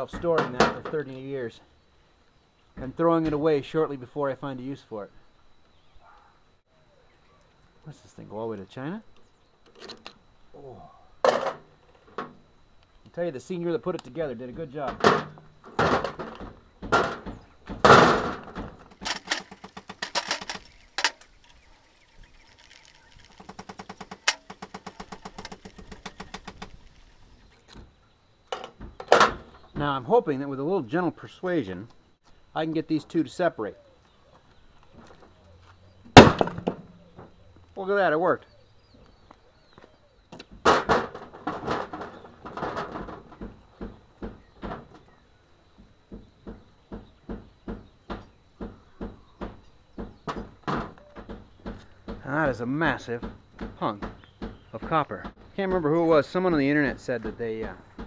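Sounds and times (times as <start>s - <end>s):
metal parts knocking and clattering: 14.9s - 21.4s, 22.4s - 27.3s
small engine puttering: 18.9s - 27.4s
metal parts scraping: 18.9s - 27.7s.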